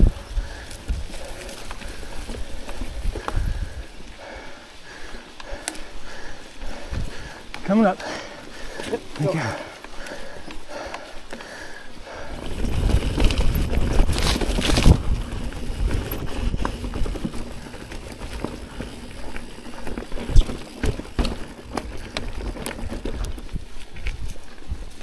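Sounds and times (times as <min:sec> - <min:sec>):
bike knocks and rattles: 0:12.5 - 0:23.6.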